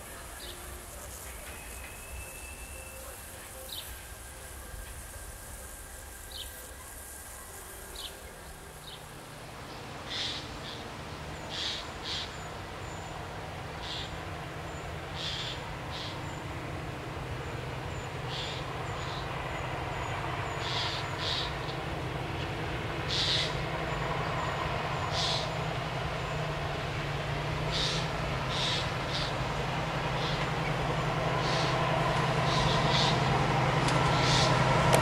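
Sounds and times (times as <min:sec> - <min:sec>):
high insect hiss: 0:00.0 - 0:10.8, 0:13.8 - 0:27.0
diesel locomotive engine drone: 0:00.0 - 0:35.0.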